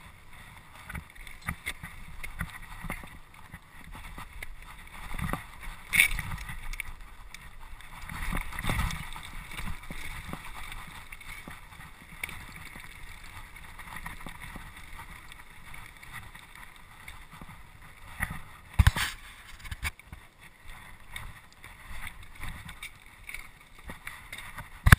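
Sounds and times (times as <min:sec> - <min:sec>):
mountain bike rattling: 0:00.0 - 0:24.9
tyres crunching on stones: 0:18.7 - 0:20.0.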